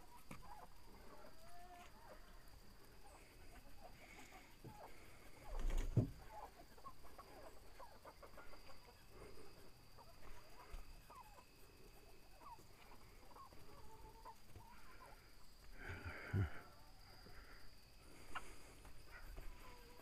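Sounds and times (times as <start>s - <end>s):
chickens clucking: 0.0s - 20.0s
thump: 5.8s - 6.2s.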